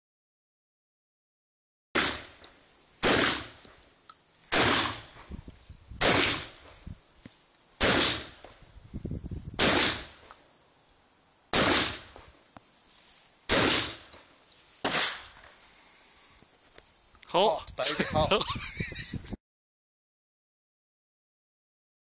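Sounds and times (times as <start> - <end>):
shotgun shots: 2.0 - 2.4, 3.0 - 3.6, 4.5 - 5.2, 6.0 - 6.6, 7.8 - 8.4, 9.6 - 10.3, 11.5 - 12.2, 13.5 - 14.1, 14.8 - 15.4.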